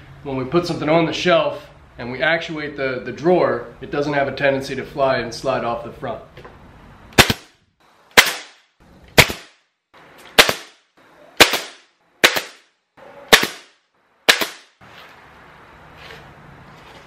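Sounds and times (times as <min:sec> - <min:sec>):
nail gun firing: 0:07.2 - 0:07.5, 0:08.2 - 0:08.6, 0:09.2 - 0:09.6, 0:10.4 - 0:10.8, 0:11.4 - 0:12.6, 0:13.3 - 0:13.7, 0:14.3 - 0:14.7.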